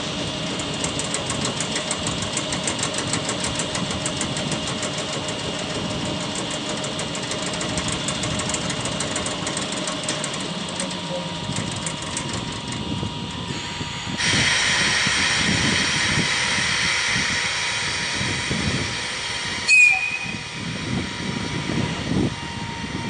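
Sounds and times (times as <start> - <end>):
locomotive machinery clattering: 0.0 - 13.5.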